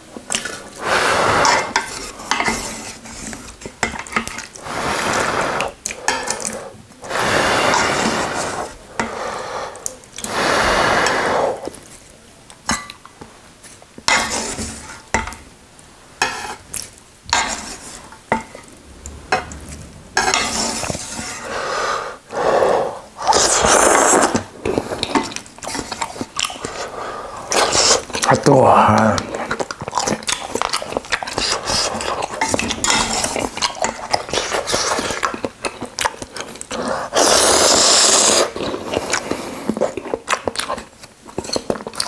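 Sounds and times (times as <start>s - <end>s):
wet noodle noise: 0.0s - 13.0s, 13.6s - 42.0s
chopsticks scraping metal pot: 16.2s - 18.7s.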